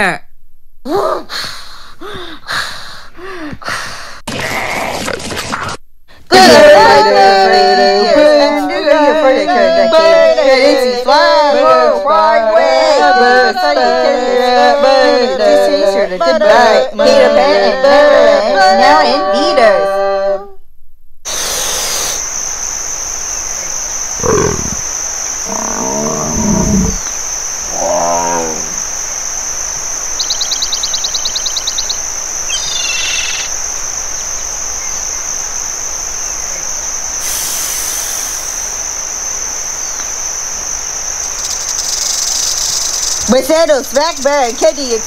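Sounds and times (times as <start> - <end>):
steady high-pitched whine: 6.2 - 45.0
animal roars and growls: 24.2 - 28.8.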